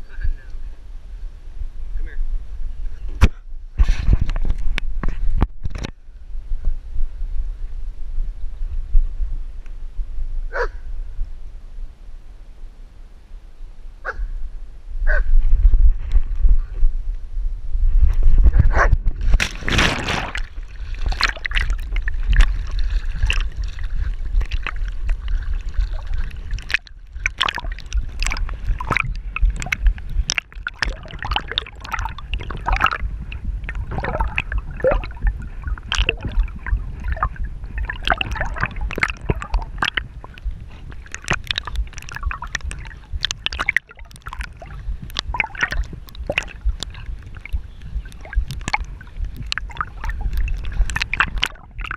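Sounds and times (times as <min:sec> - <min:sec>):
water splashing from dogs swimming: 0:19.3 - 0:51.9.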